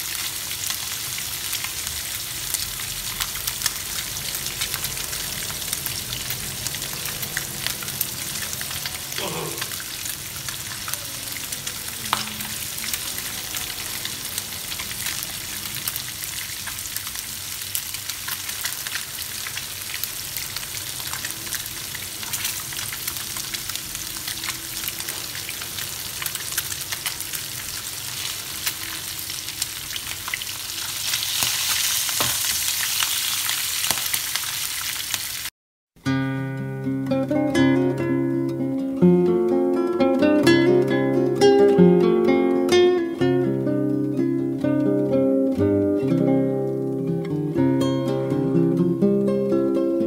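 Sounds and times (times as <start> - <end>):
fish sizzling in oil: 0.0 - 35.5.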